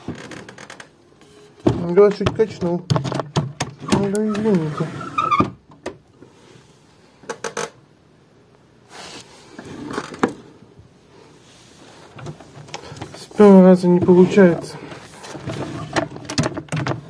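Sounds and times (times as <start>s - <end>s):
drawer scraping slide: 3.8s - 5.5s, 8.9s - 10.5s, 13.4s - 16.4s.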